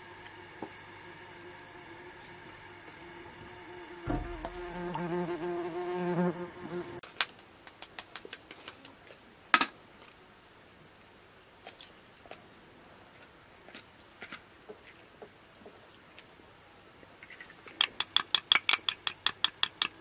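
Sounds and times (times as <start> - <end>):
insect buzzing: 0.0 - 7.0
sharp tap: 4.1 - 5.0.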